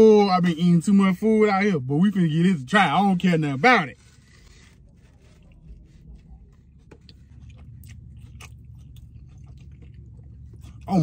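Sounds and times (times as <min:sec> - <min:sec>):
low steady rumble: 0:00.0 - 0:11.0
man chewing crunchy food: 0:04.0 - 0:11.0.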